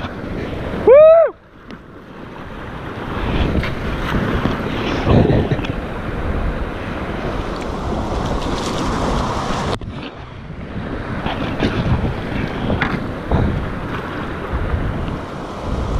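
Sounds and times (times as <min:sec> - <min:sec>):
paddle blades splashing water: 0:00.0 - 0:15.9
wind buffeting microphone: 0:00.0 - 0:15.9
river whitewater rushing: 0:04.6 - 0:09.8.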